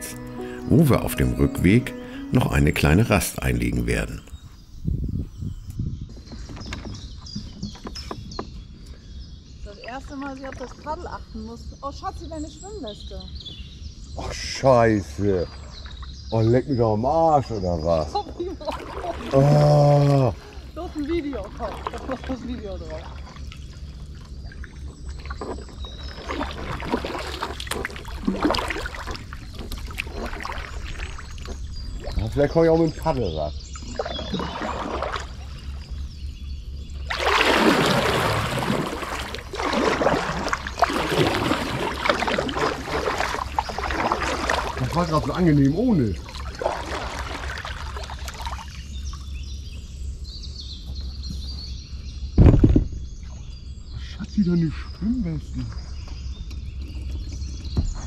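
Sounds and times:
small birds chirping: 0:00.0 - 0:58.0
paddle splashing in water: 0:18.2 - 0:32.5, 0:33.8 - 0:36.1, 0:37.0 - 0:49.3
paddle knocking against boat: 0:37.2 - 0:48.6
loud thump: 0:52.4 - 0:53.0.

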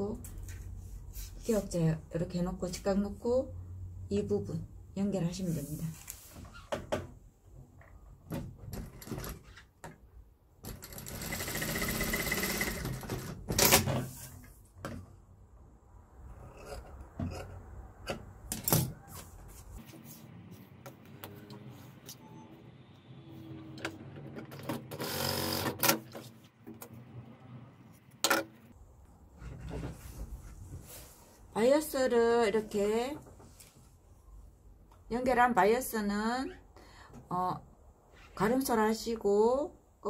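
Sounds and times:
sewing machine running: 0:10.8 - 0:13.1, 0:24.9 - 0:26.0.

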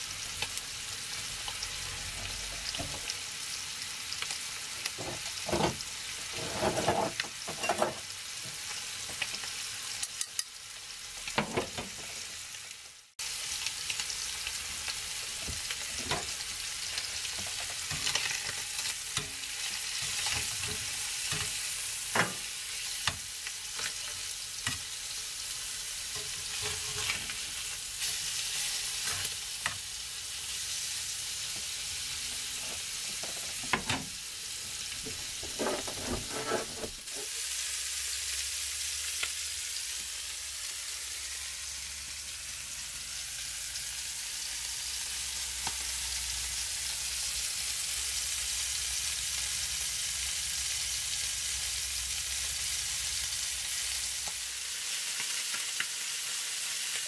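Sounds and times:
chicken sizzling in frying pan: 0:00.0 - 0:57.0
metal tongs clicking on pan: 0:10.0 - 0:10.5.

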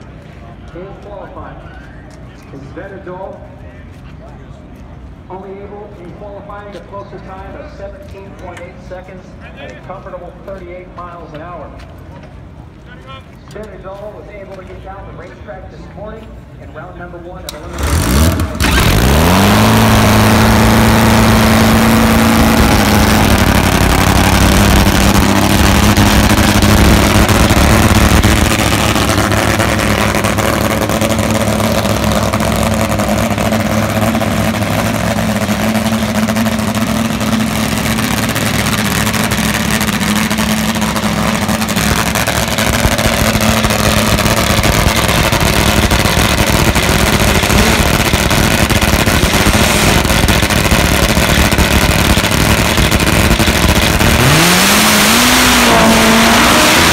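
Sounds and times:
motorcycle engine starter: 0:17.5 - 0:19.0
motorcycle engine idling loudly: 0:18.5 - 0:54.5.

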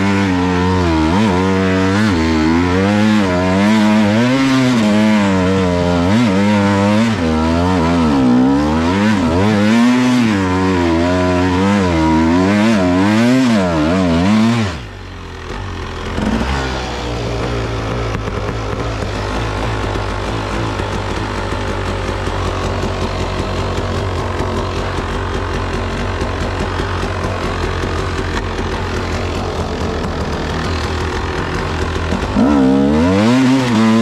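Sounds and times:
motorcycle engine revving: 0:00.0 - 0:34.0
motorcycle engine idling: 0:14.8 - 0:34.0.

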